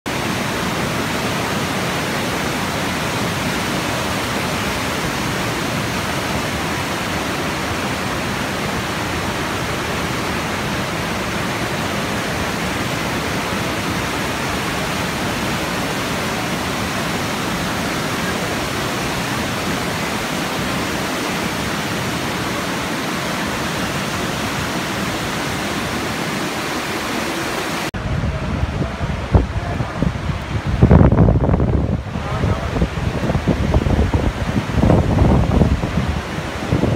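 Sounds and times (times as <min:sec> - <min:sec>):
river rushing over rocks: 0:00.1 - 0:36.9
wind buffeting microphone: 0:27.7 - 0:36.9.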